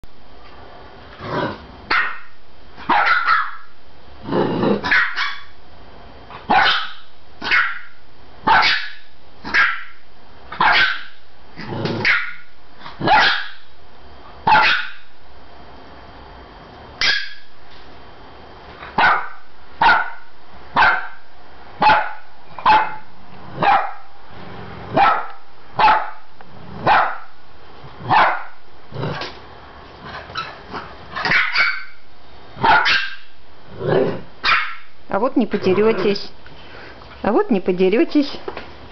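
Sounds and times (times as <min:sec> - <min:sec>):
young dog barking: 0:01.9 - 0:03.7, 0:04.8 - 0:05.6, 0:06.4 - 0:10.0, 0:10.6 - 0:11.2, 0:12.0 - 0:13.6, 0:14.4 - 0:15.1, 0:17.0 - 0:17.5, 0:18.9 - 0:21.2, 0:21.8 - 0:24.1, 0:24.9 - 0:26.2, 0:26.8 - 0:27.3, 0:28.1 - 0:28.6, 0:31.2 - 0:32.0, 0:32.6 - 0:33.3, 0:34.4 - 0:34.9, 0:35.5 - 0:36.3.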